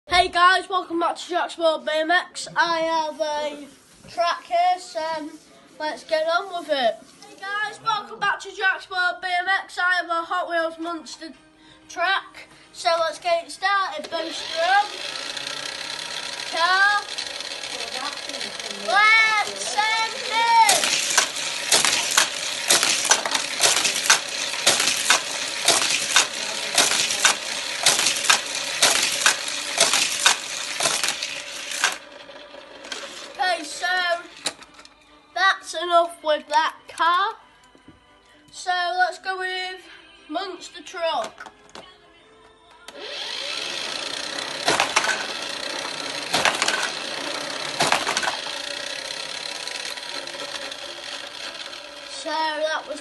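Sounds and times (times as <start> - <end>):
booster whirring rattle: 13.9 - 34.8, 42.9 - 53.0
toy cars clacking on track: 13.9 - 34.9, 42.9 - 53.0.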